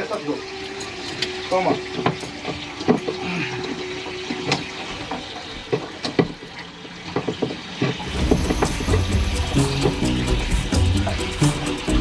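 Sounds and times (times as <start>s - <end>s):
water rushing in: 0.0s - 12.0s
steady hum: 8.1s - 12.0s.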